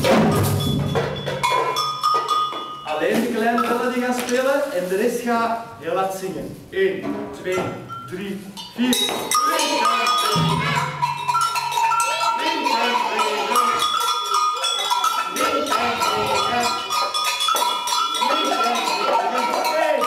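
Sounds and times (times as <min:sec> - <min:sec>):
metal bells ringing: 0:00.0 - 0:04.3, 0:07.5 - 0:20.0
children playing percussion: 0:00.0 - 0:05.0, 0:07.0 - 0:20.0.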